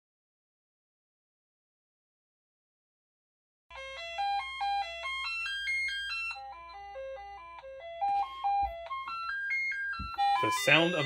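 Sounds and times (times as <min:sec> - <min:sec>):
bright beeping chip tune: 0:03.8 - 0:11.0.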